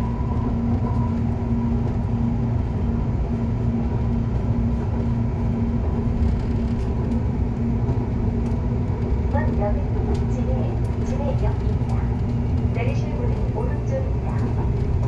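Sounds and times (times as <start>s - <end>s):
constant hum: 0.0s - 15.0s
train wheels rumbling on rails: 0.0s - 15.0s.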